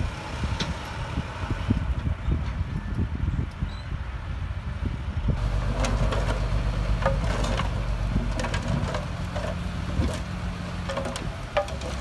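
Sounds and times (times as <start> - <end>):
diesel engines running: 0.0 - 3.3, 4.2 - 12.0
metal clanks and knocks: 5.4 - 12.0.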